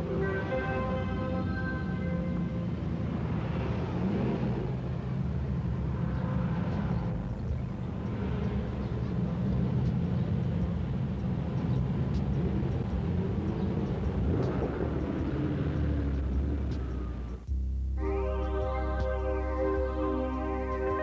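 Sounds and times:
music: 0.0s - 2.9s, 12.1s - 21.0s
car engines running: 0.0s - 17.7s.

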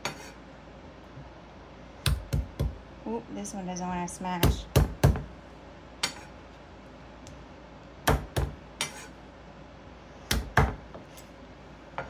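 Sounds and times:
knife smashing garlic on wooden board: 2.0s - 2.8s, 4.4s - 5.3s, 8.0s - 9.1s, 10.3s - 11.0s.

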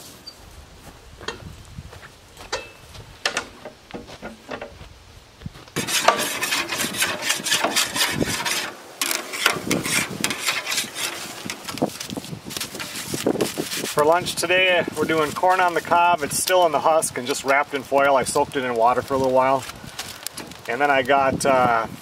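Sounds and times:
clicks and knocks: 2.5s - 4.8s
wire brush scraping metal grate: 5.8s - 18.0s.

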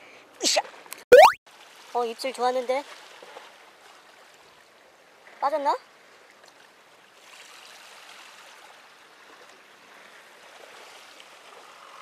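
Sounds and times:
seawater lapping: 6.0s - 12.0s.

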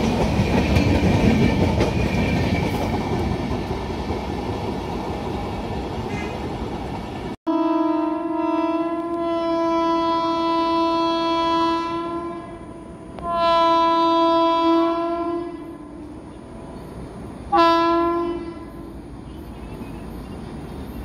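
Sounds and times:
train horn blasts: 7.5s - 16.2s, 17.5s - 19.0s.

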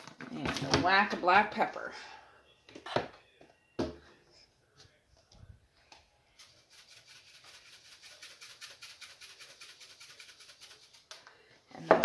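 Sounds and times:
pepper shaker rattling: 6.4s - 11.1s.

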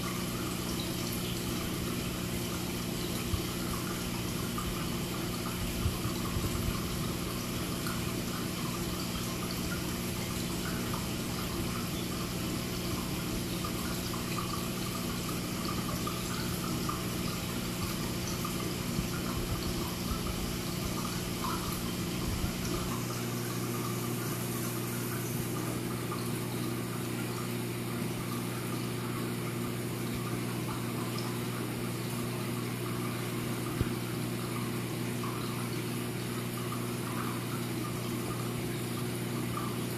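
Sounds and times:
electrical hum of pumps: 0.0s - 39.9s
water running and trickling: 0.0s - 39.9s.

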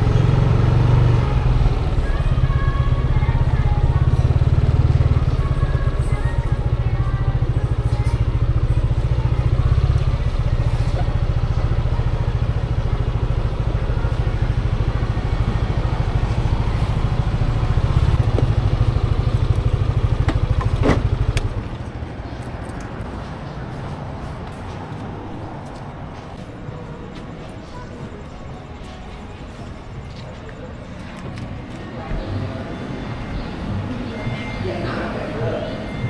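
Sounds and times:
scooter engine idling: 0.0s - 23.2s.

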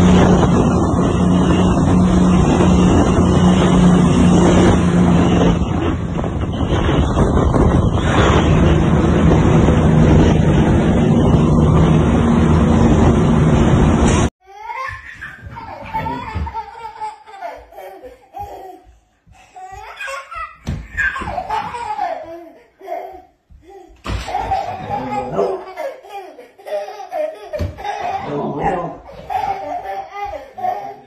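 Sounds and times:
vehicle engine hum: 0.0s - 14.3s
wind noise: 0.0s - 14.3s
child laughing and squealing: 14.5s - 31.0s.

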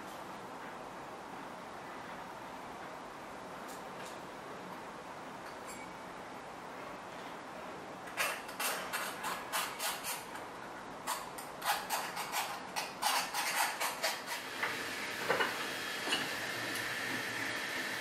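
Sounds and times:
hand tool scraping brass: 11.6s - 14.5s.

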